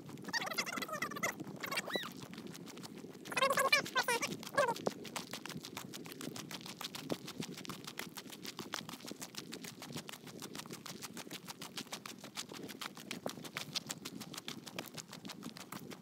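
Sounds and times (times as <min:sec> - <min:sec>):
wind rumbling on microphone: 0:00.0 - 0:16.0.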